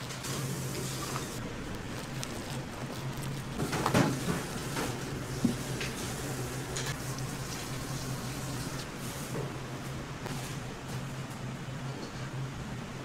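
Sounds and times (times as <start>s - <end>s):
steady low hum: 0.0s - 13.0s
kitchen knocks and clatters: 3.6s - 6.1s.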